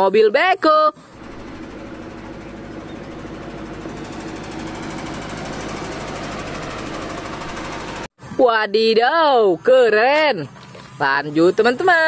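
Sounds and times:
diesel excavator driving past: 1.1 - 8.1.

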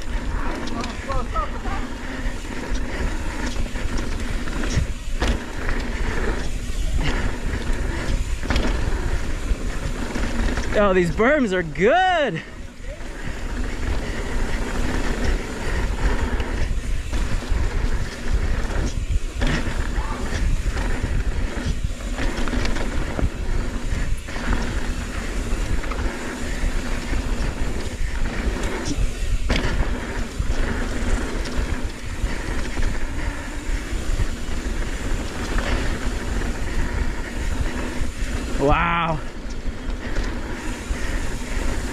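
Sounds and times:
bike rattling and knocking: 0.0 - 41.9
bike tyre noise on dirt: 0.0 - 41.9
wind rumble on microphone: 12.4 - 41.9.

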